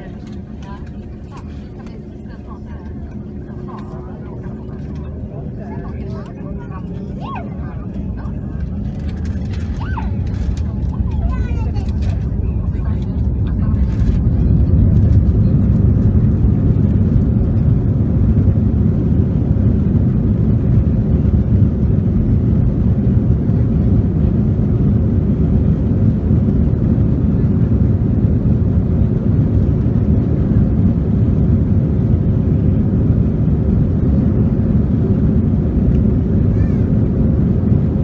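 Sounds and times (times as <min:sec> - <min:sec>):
jet engine cabin rumble: 0:00.0 - 0:38.0.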